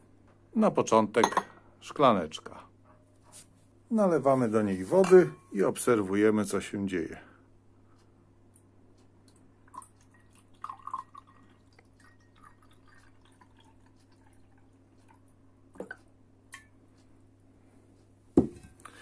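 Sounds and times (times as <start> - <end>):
water pouring into a glass: 9.7 - 15.3.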